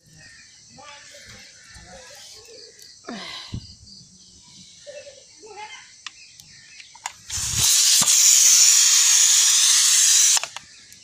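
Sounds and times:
pressure cooker venting steam: 7.3s - 10.5s.

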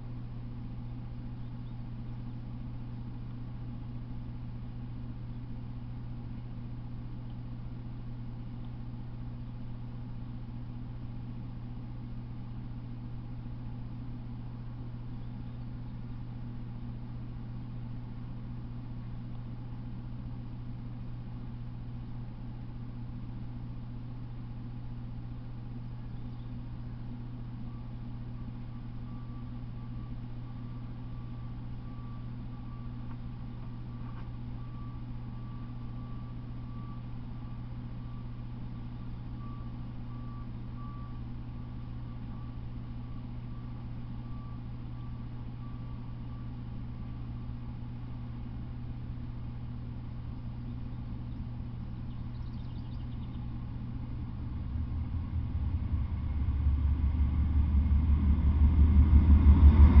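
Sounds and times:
steady low hum: 0.0s - 60.0s
deep pulsing rumble: 38.8s - 60.0s.

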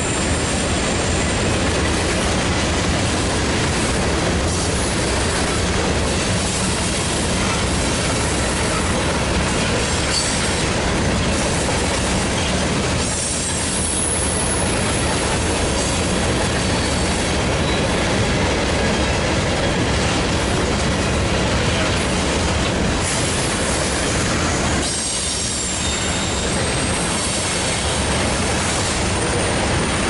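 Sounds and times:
freight train rumbling on rails: 0.0s - 30.0s
high wheel squeal: 9.8s - 10.6s, 12.4s - 15.2s, 16.6s - 18.0s, 24.7s - 30.0s.

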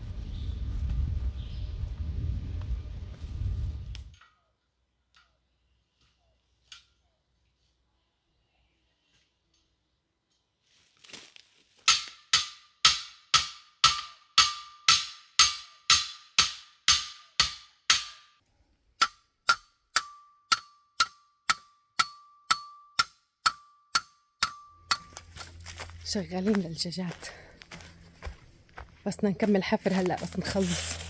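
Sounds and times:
hammer striking metal: 11.9s - 18.4s, 19.0s - 25.3s.

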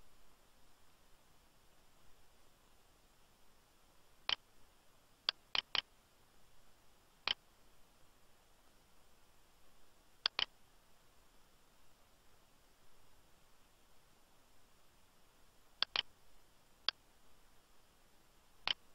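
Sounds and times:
mouse and keyboard clicks: 5.3s - 5.9s, 10.2s - 10.6s, 15.8s - 16.1s, 18.6s - 18.9s.

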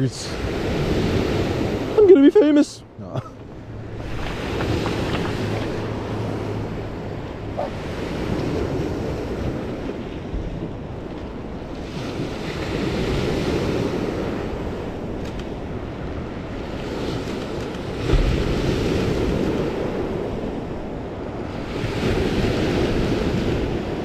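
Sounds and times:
wind rumbling on microphone: 2.8s - 24.0s
waves breaking on pebble beach: 3.8s - 6.7s.

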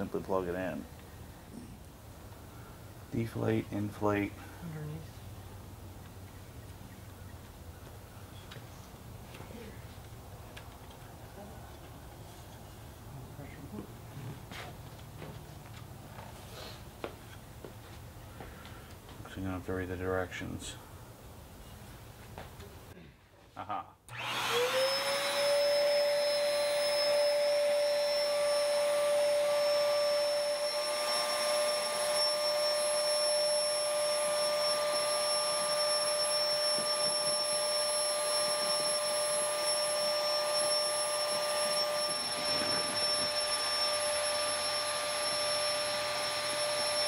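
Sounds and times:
electric blower motor whining: 24.1s - 47.0s.

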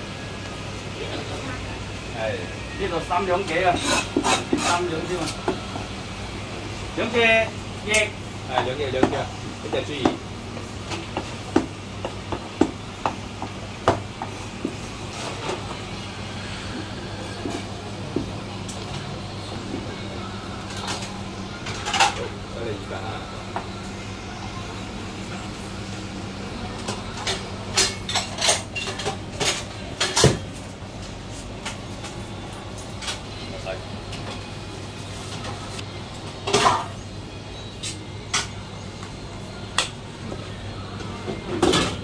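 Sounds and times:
kitchen utensils clattering: 21.6s - 22.3s, 26.9s - 30.5s.

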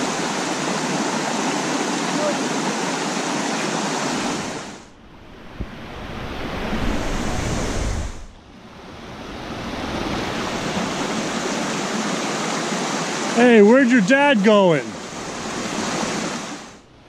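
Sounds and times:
stream rushing over boulders: 0.0s - 4.9s, 9.5s - 16.8s
wind rumble on microphone: 5.0s - 11.5s.

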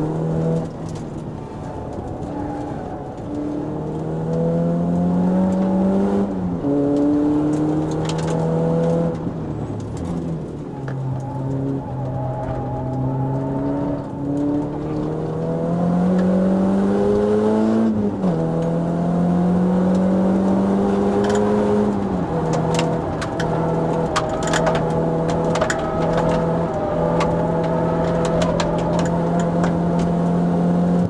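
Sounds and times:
car engine revving: 0.0s - 31.0s.

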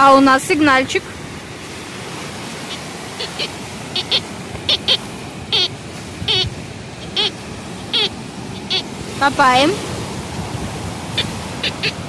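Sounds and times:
surf washing: 0.0s - 12.0s
metal detector beeping: 2.7s - 9.7s, 11.1s - 12.0s.

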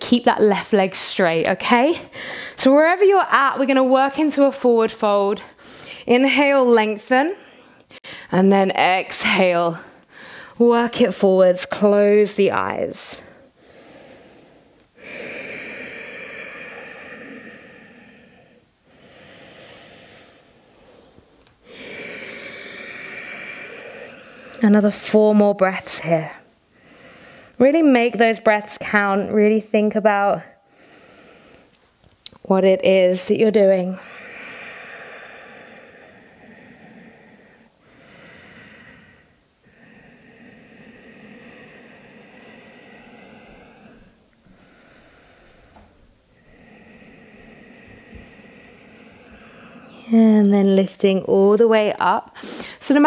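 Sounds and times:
woman breathing slowly: 2.0s - 2.6s, 5.4s - 6.1s, 7.3s - 8.4s, 9.8s - 10.6s, 13.2s - 25.2s, 26.0s - 27.6s, 30.5s - 32.1s, 33.5s - 53.0s.

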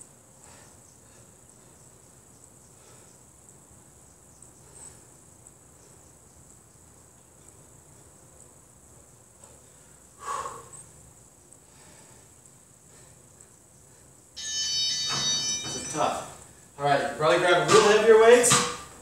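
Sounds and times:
high-pitched whine: 14.4s - 16.5s.

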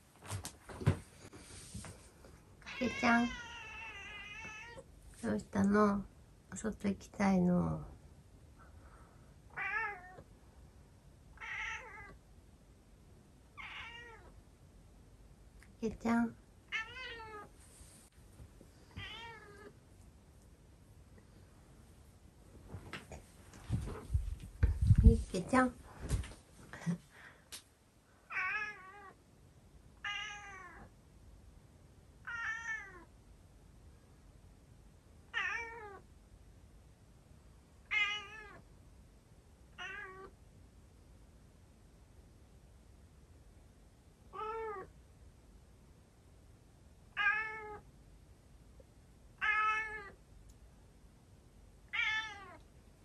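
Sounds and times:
cat meowing: 2.6s - 4.8s, 9.5s - 10.2s, 11.4s - 12.2s, 13.6s - 14.3s, 16.7s - 17.5s, 19.0s - 19.7s, 28.3s - 29.2s, 30.0s - 30.9s, 32.2s - 33.1s, 35.3s - 36.0s, 37.9s - 38.6s, 39.8s - 40.3s, 44.3s - 44.9s, 47.1s - 47.8s, 49.4s - 50.2s, 51.9s - 52.6s.

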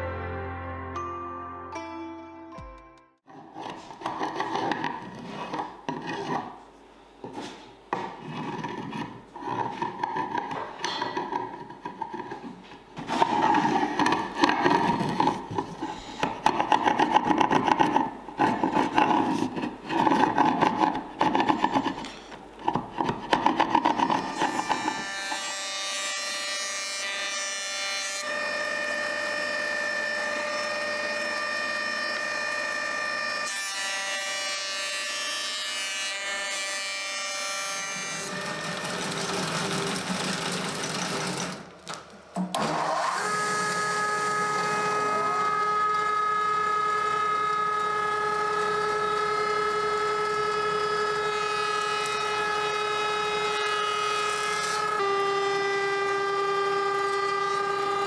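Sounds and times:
chisel scraping wood: 3.3s - 6.6s, 7.2s - 25.0s
planer-thicknesser whining: 42.4s - 58.0s.

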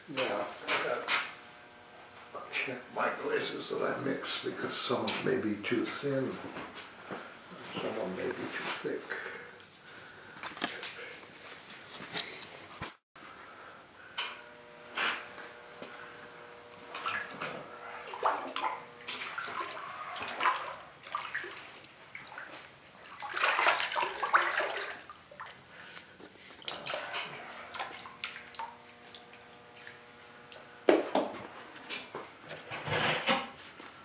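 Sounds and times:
hand sloshing through liquid: 18.0s - 30.0s.

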